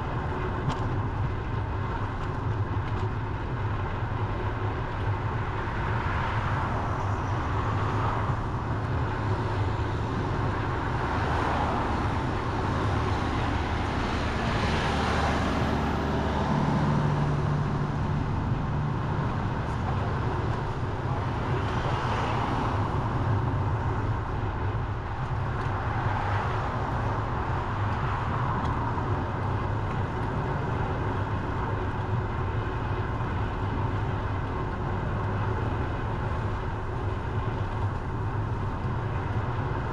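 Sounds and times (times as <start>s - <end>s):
low engine hum: 0.0s - 39.9s
cars rushing past: 9.4s - 20.3s.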